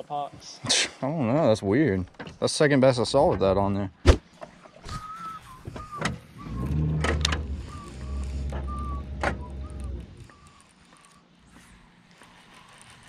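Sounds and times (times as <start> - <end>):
sharp clicks: 5.9 - 11.3
fishing reel gear whine: 6.3 - 13.0.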